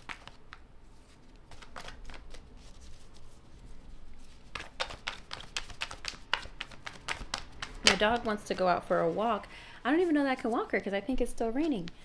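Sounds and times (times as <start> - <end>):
cards being shuffled: 0.0 - 9.2.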